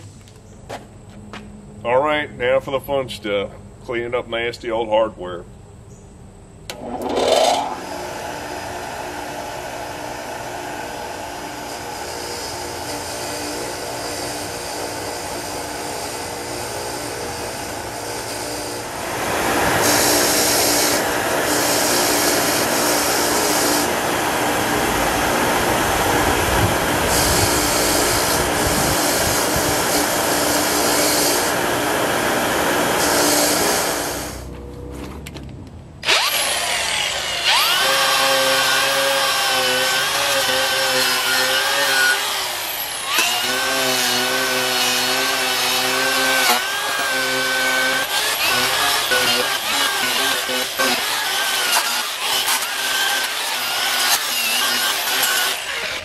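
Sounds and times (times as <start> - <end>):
metal grinding on wheel: 6.7 - 8.0, 36.0 - 56.0
bench grinder running: 6.7 - 34.5, 36.0 - 56.0.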